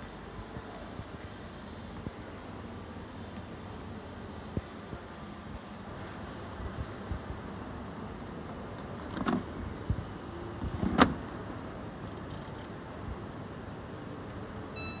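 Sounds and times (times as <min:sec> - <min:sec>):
steady background hum: 0:00.0 - 0:15.0
short electronic beep: 0:14.8 - 0:15.0.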